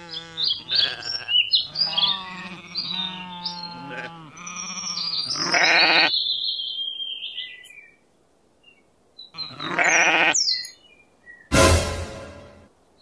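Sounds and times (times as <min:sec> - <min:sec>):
animal bleats: 0:00.0 - 0:06.1, 0:09.3 - 0:10.4.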